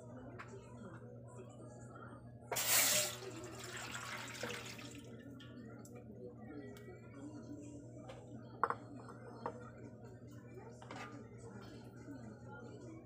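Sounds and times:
liquid pouring into metal pot: 0:02.6 - 0:05.2.

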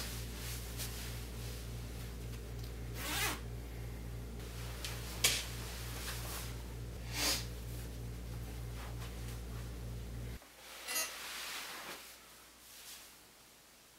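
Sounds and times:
clothing swishes: 0:00.0 - 0:02.4, 0:04.4 - 0:06.7, 0:10.6 - 0:13.3
low electrical hum: 0:00.0 - 0:13.9.

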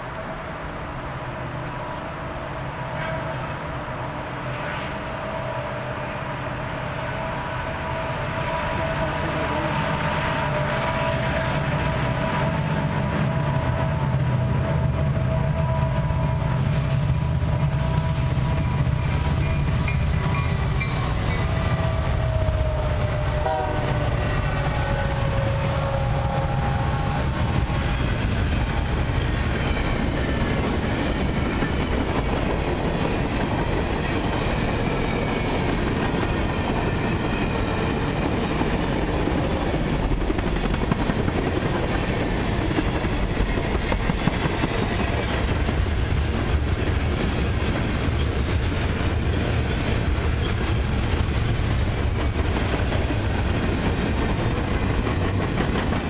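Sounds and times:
locomotive horn: 0:02.4 - 0:03.8, 0:04.5 - 0:16.7, 0:17.4 - 0:18.9, 0:21.3 - 0:27.4.

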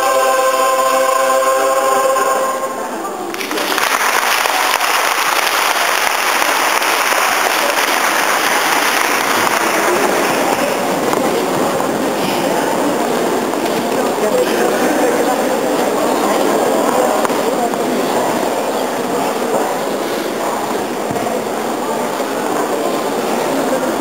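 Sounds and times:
choir singing: 0:00.0 - 0:03.6
audience applause: 0:03.3 - 0:11.5.

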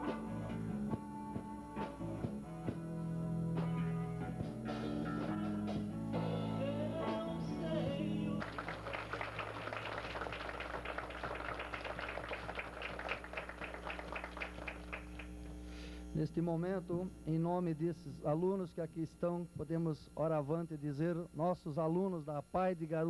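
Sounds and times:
guitar chords: 0:00.0 - 0:09.1
crowd clapping: 0:08.4 - 0:15.5.

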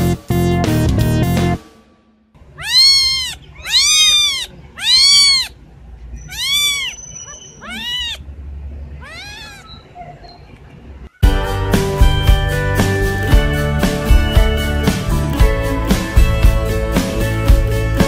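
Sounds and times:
music: 0:00.0 - 0:02.4, 0:11.2 - 0:18.0
kittens mewing: 0:02.4 - 0:10.3.

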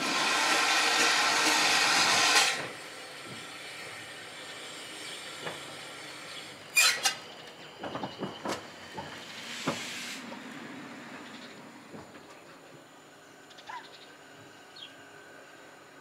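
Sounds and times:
steam exhaust beats: 0:00.0 - 0:06.8, 0:07.6 - 0:13.2
steam hissing: 0:00.0 - 0:07.4, 0:08.7 - 0:11.1.

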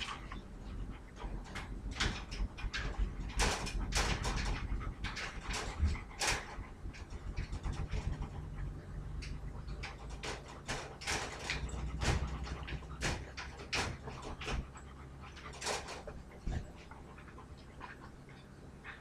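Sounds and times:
puppy panting: 0:00.0 - 0:19.0
wire dog crate rattling: 0:00.0 - 0:19.0.

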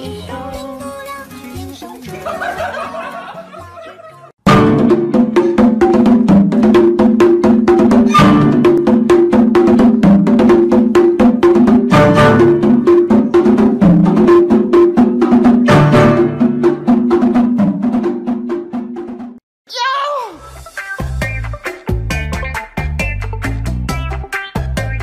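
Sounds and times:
fast melodic tune: 0:04.5 - 0:18.3
wood-block clicking beat: 0:04.6 - 0:18.0.

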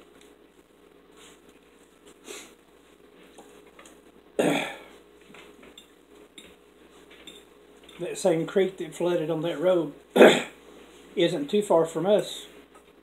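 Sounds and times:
soft small noises: 0:00.0 - 0:13.0
person burping: 0:04.4 - 0:04.9, 0:10.2 - 0:10.6.

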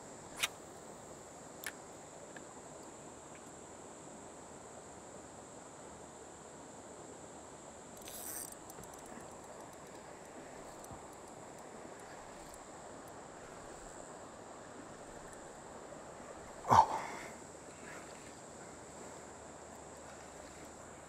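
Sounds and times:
insects droning: 0:00.0 - 0:21.0
outdoor hiss: 0:00.0 - 0:21.0
faint ticks: 0:01.6 - 0:03.6, 0:08.0 - 0:14.1, 0:15.1 - 0:15.5.

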